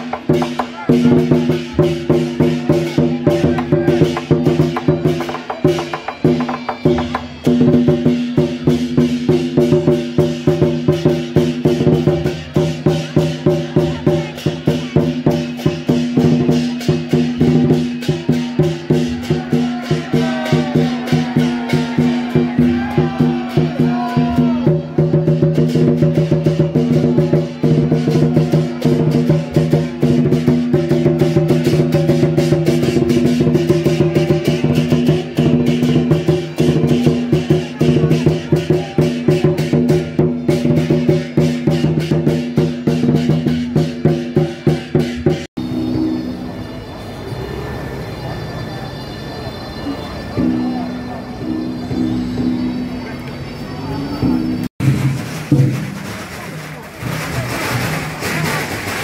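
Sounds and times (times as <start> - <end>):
fast wood-block and drum beat: 0.0 - 46.3, 54.2 - 59.0.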